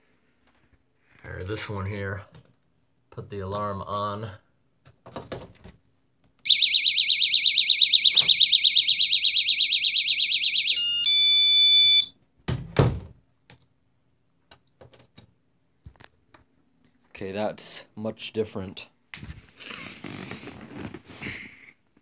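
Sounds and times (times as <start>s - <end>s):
warbling alarm siren: 6.5s - 12.1s.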